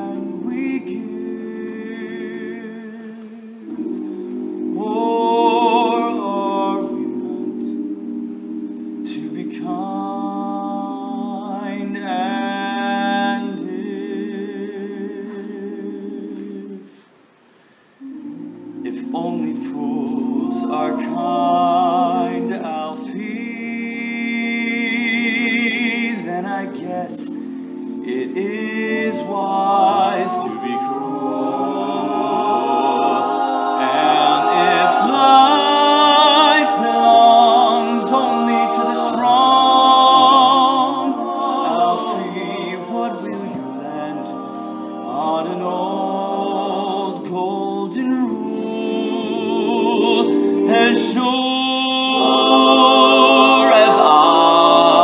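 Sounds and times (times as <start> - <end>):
male voices singing chords: 0.0 - 17.1, 18.0 - 55.0
male soloist singing: 18.8 - 55.0.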